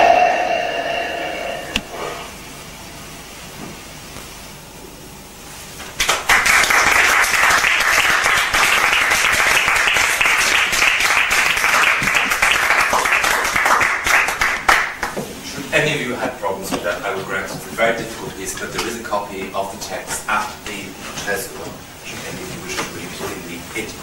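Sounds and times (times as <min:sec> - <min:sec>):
audience applause: 0:06.0 - 0:15.2.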